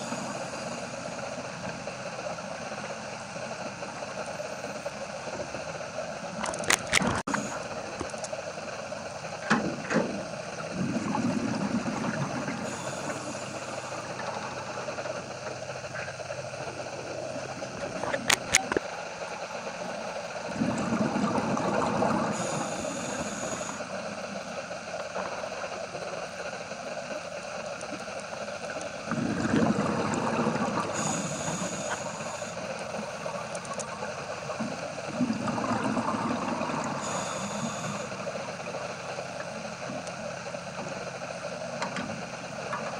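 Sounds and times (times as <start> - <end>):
regulator hiss: 0.0 - 6.4, 7.2 - 42.7
muffled hum: 0.0 - 42.9
sharp clicks: 6.4 - 7.3, 18.1 - 18.8
bubbling exhale underwater: 10.2 - 18.3, 20.4 - 23.8, 28.9 - 39.6.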